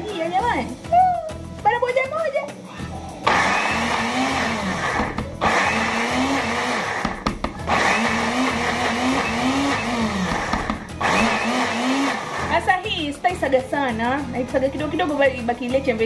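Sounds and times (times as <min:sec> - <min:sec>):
blender grinding beans in pulses: 0:03.2 - 0:12.7.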